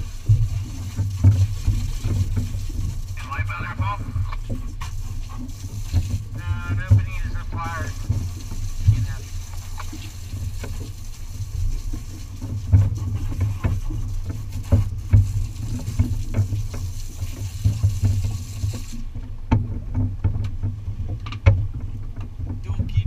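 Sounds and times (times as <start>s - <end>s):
boat low steady rumble: 0.0s - 23.0s
knocks and rattles: 19.0s - 23.0s.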